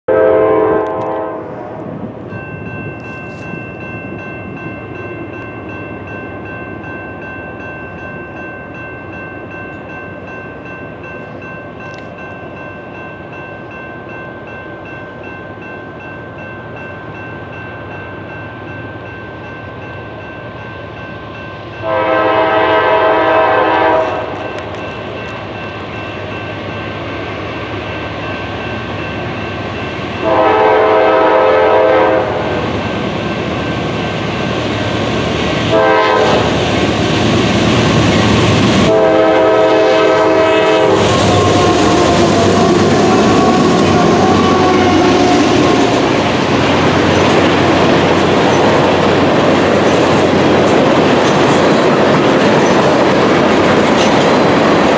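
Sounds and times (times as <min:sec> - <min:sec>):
diesel locomotive horn: 0:00.1 - 0:02.0, 0:21.8 - 0:24.8, 0:30.2 - 0:32.7, 0:35.7 - 0:36.7, 0:38.8 - 0:46.2
electronic crossing bell ringing: 0:02.3 - 0:22.2.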